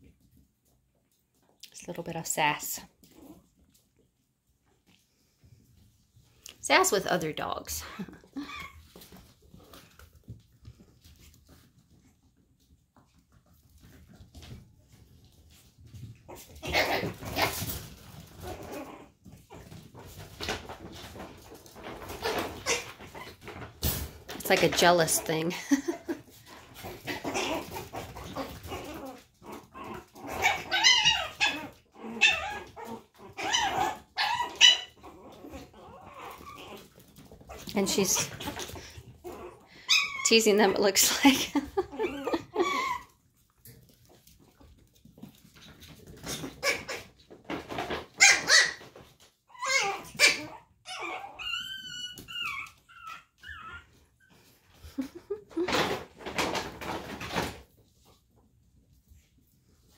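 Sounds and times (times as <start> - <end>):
dog whining: 7.9 - 8.9, 29.8 - 36.8, 38.2 - 40.3, 41.8 - 43.3, 48.2 - 48.8, 49.5 - 55.9
puppy barking: 49.7 - 51.3.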